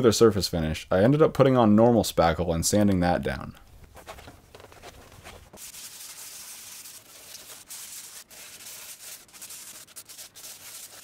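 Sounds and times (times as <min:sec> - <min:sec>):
hand sanding with sandpaper: 0:05.1 - 0:11.0.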